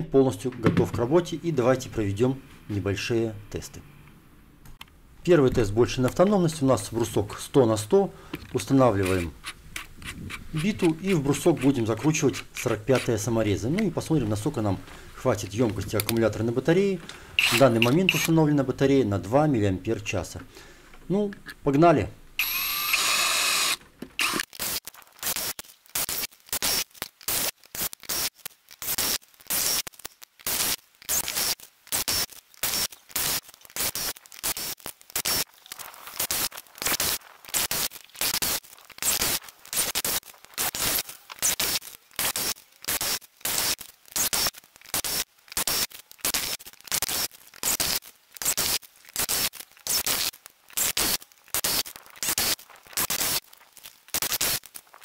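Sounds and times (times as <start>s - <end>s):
screws scraping into wood: 9.0s - 13.3s, 17.4s - 18.3s, 22.4s - 25.5s
cordless drill driving screws: 17.4s - 18.2s, 22.4s - 24.5s.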